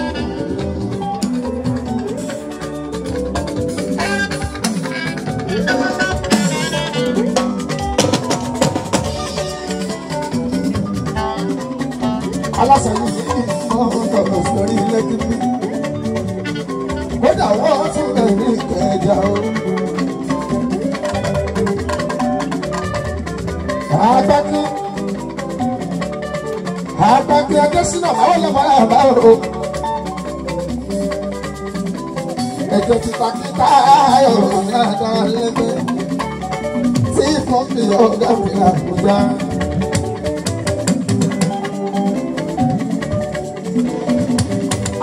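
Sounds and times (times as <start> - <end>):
band playing percussion guitar keyboard: 0.0 - 45.0
rattling shaker: 0.0 - 45.0
man singing: 4.0 - 7.4, 12.0 - 15.6, 32.7 - 36.0, 37.1 - 39.6.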